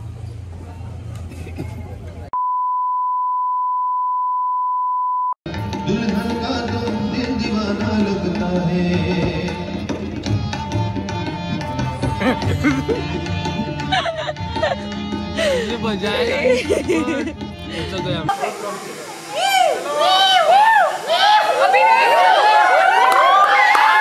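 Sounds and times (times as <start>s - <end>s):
high censor bleep: 2.4s - 5.4s
tabla drumming: 5.5s - 17.7s.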